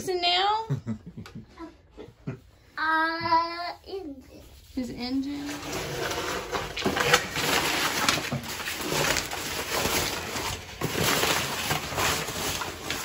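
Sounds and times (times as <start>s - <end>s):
plastic bag and paper rustling: 4.4s - 13.0s.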